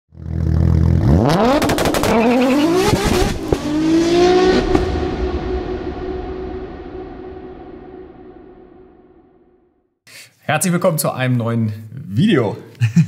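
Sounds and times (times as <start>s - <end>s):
car engine revving: 0.1s - 9.2s
exhaust crackles and pop: 0.4s - 3.7s, 4.6s - 5.0s.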